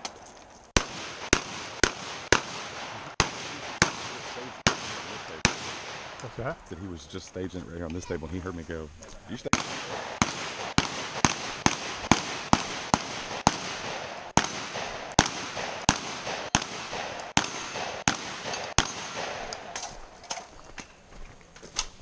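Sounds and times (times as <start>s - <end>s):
rifle gunshots: 0.8s - 6.2s, 9.4s - 20.1s.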